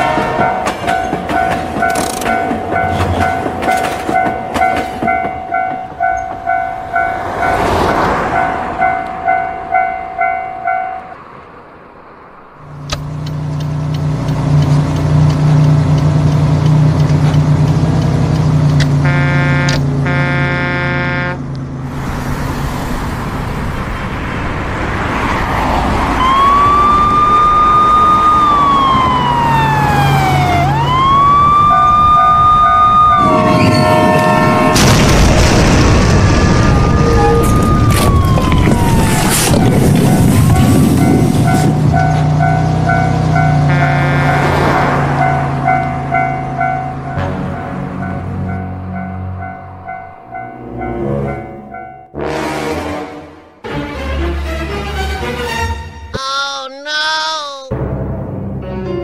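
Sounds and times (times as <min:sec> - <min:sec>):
train horn blast: 0:00.0 - 0:00.8, 0:19.0 - 0:21.5, 0:33.2 - 0:34.9, 0:43.3 - 0:45.2, 0:47.1 - 0:48.1, 0:52.2 - 0:53.5
train engine running: 0:00.0 - 0:07.9, 0:12.6 - 0:23.5
crossing bell dinging: 0:00.0 - 0:11.6, 0:31.8 - 0:34.9, 0:40.0 - 0:52.2
siren wailing: 0:26.0 - 0:34.8, 0:36.4 - 0:42.1
loud crash: 0:33.2 - 0:38.2.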